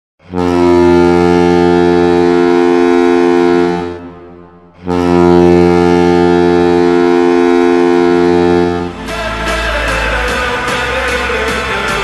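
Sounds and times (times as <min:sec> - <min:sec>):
goal horn blasts: 0:00.2 - 0:09.1.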